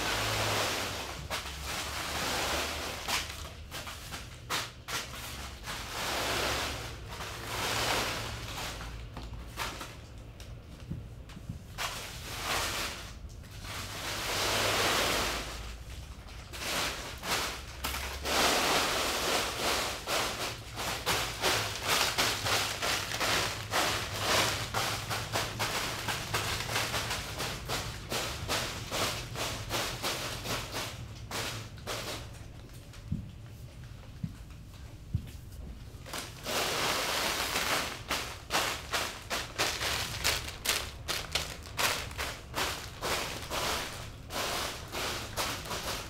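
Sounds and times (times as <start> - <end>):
wrapped cookies crinkling and rattling: 15.5 - 33.5, 36.0 - 46.0.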